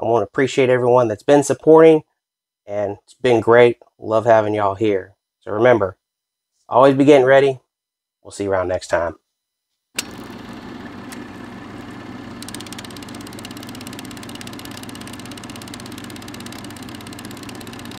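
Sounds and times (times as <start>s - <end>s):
film clattering through projector: 10.0s - 18.0s
film projector whirring: 10.0s - 18.0s.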